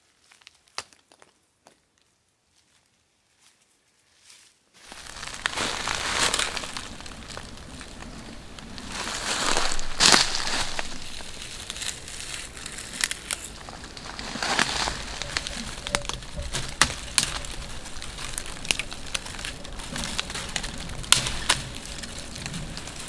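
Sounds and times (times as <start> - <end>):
brittle crackling and rustling: 4.8 - 23.0
dry twigs snapping: 4.8 - 23.0.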